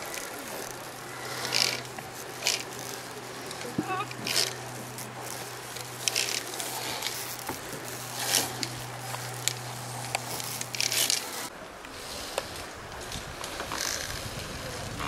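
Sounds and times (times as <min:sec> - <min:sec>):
rustling and scraping handling noise: 0:00.0 - 0:14.8
low steady hum: 0:00.0 - 0:15.0.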